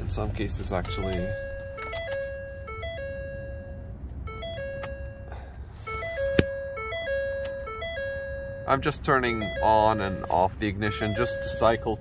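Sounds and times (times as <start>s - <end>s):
ignition key clicks: 0.7s - 3.0s, 4.4s - 5.2s, 6.0s - 8.0s.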